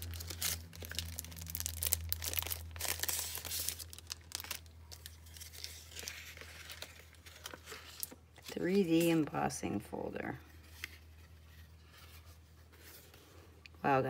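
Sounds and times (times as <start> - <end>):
plastic packaging crinkling: 0.0 - 9.4.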